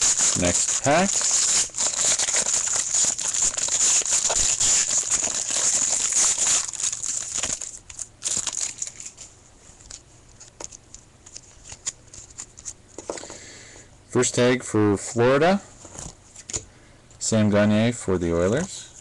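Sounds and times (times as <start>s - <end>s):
wrapper crinkling: 0.0s - 12.8s
cards rustling: 0.0s - 13.3s.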